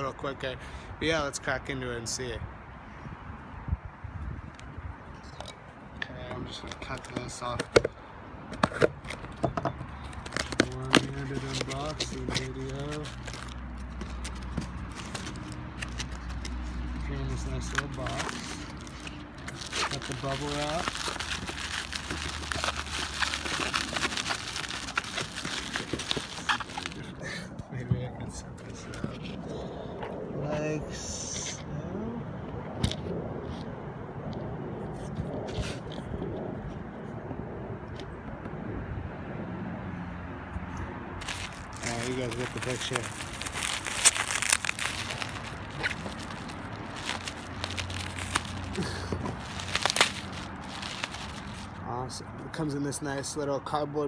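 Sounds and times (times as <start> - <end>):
bubble wrap crackling: 10.0 - 27.2, 41.2 - 51.8
package rustling in cardboard box: 10.0 - 27.2, 41.2 - 51.8.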